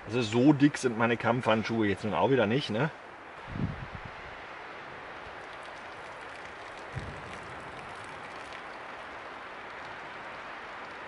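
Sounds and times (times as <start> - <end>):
water pouring onto ground: 4.8 - 11.0.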